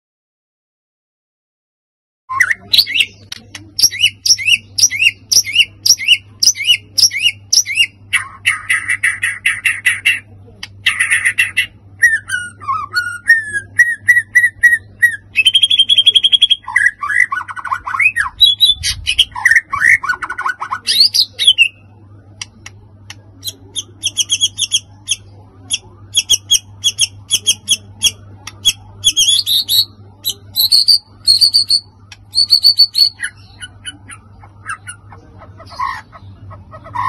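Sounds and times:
bird chipping notes: 2.3 - 37.0
bird whistling song: 3.8 - 10.2, 10.8 - 21.8, 23.7 - 35.0.

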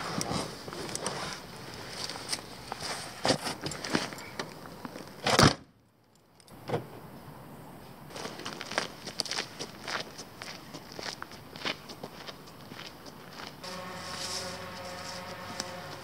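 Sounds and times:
boots scuffing on leaves and gravel: 8.1 - 16.0
footsteps crunching on gravel: 8.1 - 16.0.

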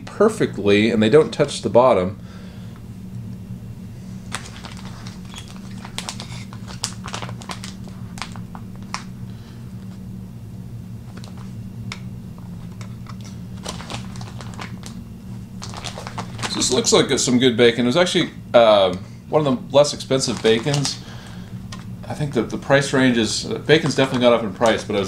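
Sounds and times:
steady low hum: 0.0 - 25.0
clicks and crinkles of handling bacon: 4.3 - 9.1, 12.4 - 16.9, 20.1 - 22.6.

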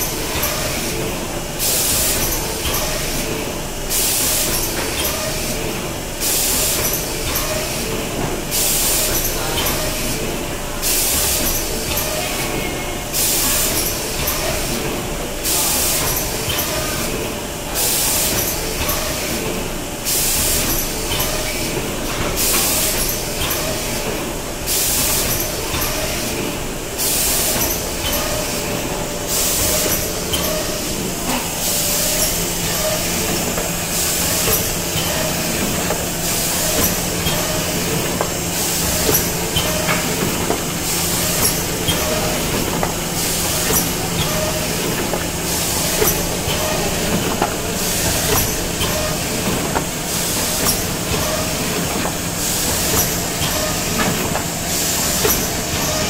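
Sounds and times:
machine clatter and hum: 0.0 - 56.0.

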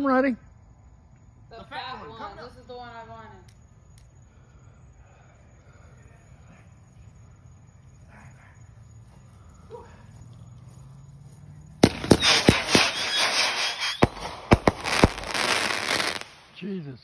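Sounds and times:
firework loud bang: 11.8 - 16.4
firework sharp reports and crackling: 11.8 - 16.7.

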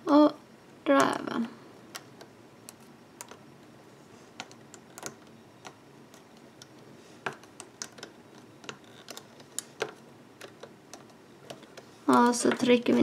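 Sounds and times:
hook clicking on plastic pegs: 4.4 - 13.0.

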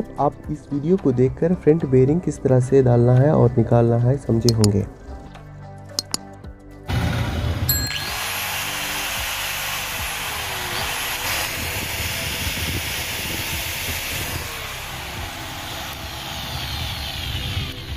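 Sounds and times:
angle grinder running: 7.7 - 17.9.

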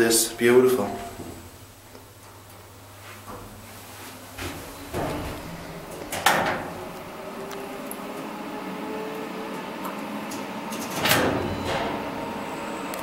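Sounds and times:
faint elevator hum: 0.0 - 13.0
elevator clunk: 4.4 - 7.4, 10.7 - 12.9.

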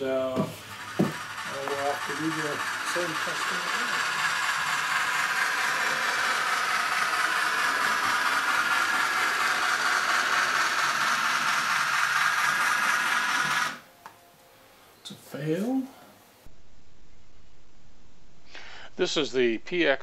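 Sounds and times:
model train rattling hiss: 0.6 - 13.8.

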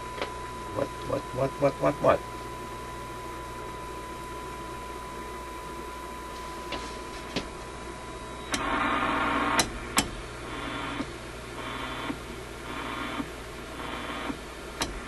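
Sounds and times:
shortwave radio static hiss: 0.6 - 15.0
steady radio whistle: 8.0 - 9.6, 10.5 - 14.4.

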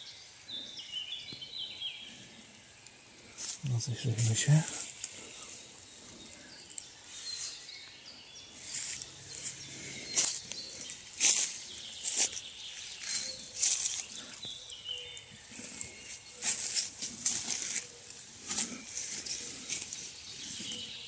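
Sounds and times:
footsteps crunching dry leaves: 8.5 - 14.7, 15.4 - 21.0.

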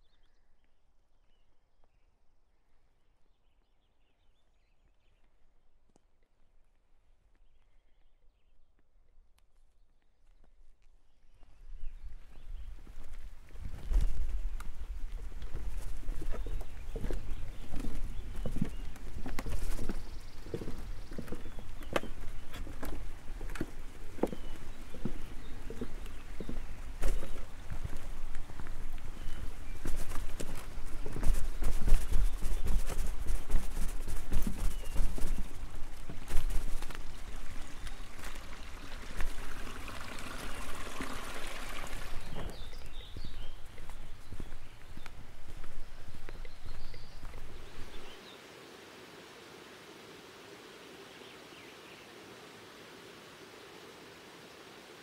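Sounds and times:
flowing water: 13.6 - 55.0
cart rattling over rocks: 15.4 - 45.0.

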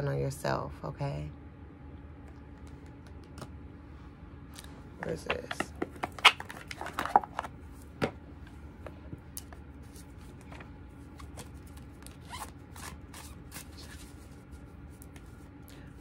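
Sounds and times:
low steady hum: 0.0 - 16.0
cards being shuffled: 5.4 - 8.0, 9.4 - 15.5.

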